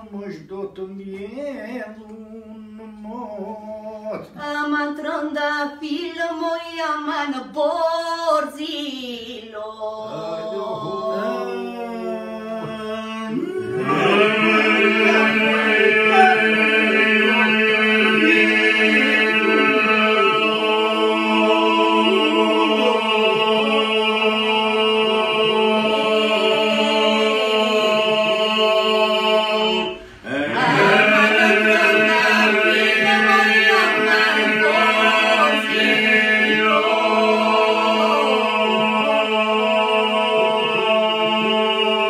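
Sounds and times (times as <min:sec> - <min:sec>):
voices singing low drone: 0:09.9 - 0:42.0
lead voice singing melody: 0:12.6 - 0:17.5.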